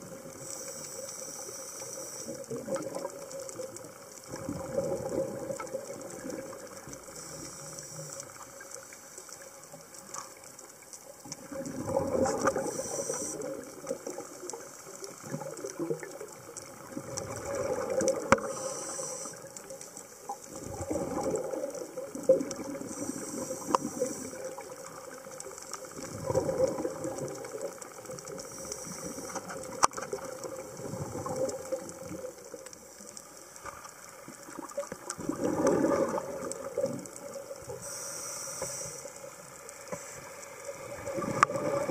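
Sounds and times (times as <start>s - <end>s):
regulator hiss on inhale: 0.1s - 2.7s, 6.8s - 11.0s, 12.2s - 15.2s, 17.8s - 21.0s, 22.6s - 26.0s, 28.2s - 30.2s, 37.6s - 41.9s
exhaled bubbles rushing: 2.4s - 7.0s, 11.4s - 18.5s, 20.2s - 28.4s, 29.5s - 32.5s, 34.3s - 37.8s, 40.8s - 41.9s.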